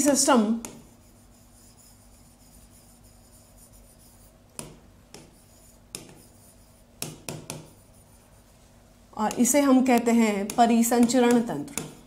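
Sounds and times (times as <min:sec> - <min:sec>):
faint steady hum: 0:00.0 - 0:12.0
pen scraping on board: 0:00.6 - 0:08.4, 0:09.3 - 0:12.0
pen tip tapping: 0:09.3 - 0:12.0.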